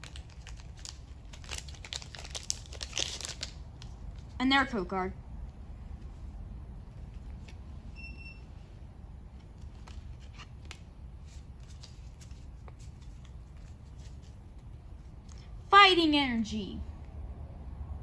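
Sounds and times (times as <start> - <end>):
cards clicking and rustling: 0.0 - 4.3, 9.3 - 15.4
low steady hum: 0.0 - 18.0.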